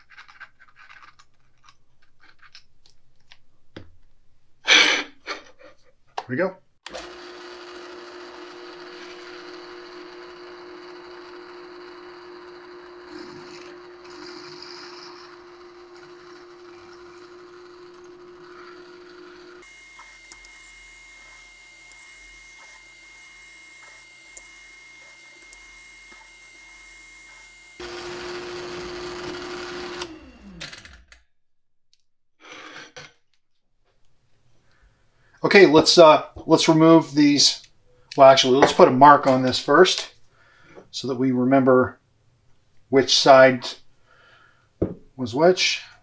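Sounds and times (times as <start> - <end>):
electric drill running: 6.9 - 31.1.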